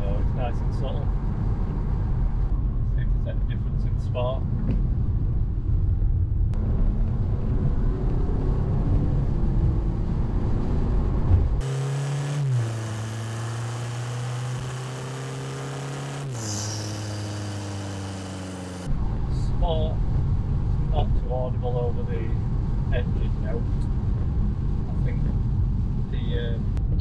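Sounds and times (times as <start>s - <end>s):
road noise: 0.0s - 27.0s
diesel car engine droning: 6.1s - 27.0s.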